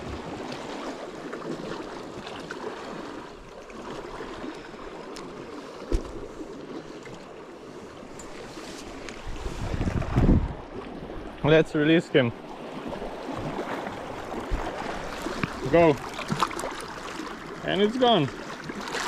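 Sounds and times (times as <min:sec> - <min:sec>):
dull thump: 0:05.8 - 0:06.3
water washing against rocks: 0:12.9 - 0:19.0.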